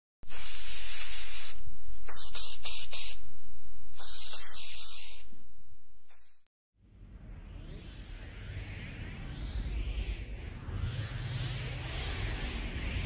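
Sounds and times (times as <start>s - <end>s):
aerosol spray can spraying: 0.3s - 6.4s.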